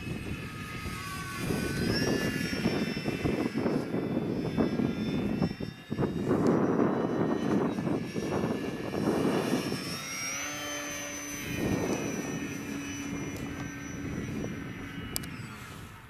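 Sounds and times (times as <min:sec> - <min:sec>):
model airplane motor whine: 0:00.0 - 0:16.0
wind noise on microphone: 0:00.0 - 0:16.0.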